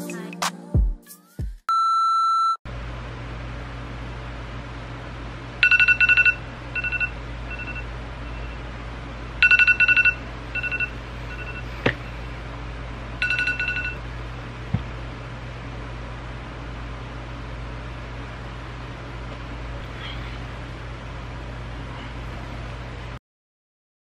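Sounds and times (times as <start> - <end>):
phone alarm beeping: 1.7 - 2.6, 5.6 - 8.6, 9.4 - 11.7, 13.2 - 14.0
steady low hum: 2.7 - 23.2.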